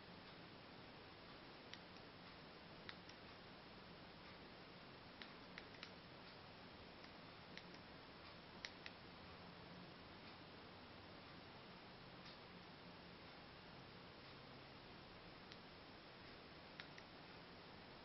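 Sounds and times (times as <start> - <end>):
steady low hiss: 0.0 - 18.0.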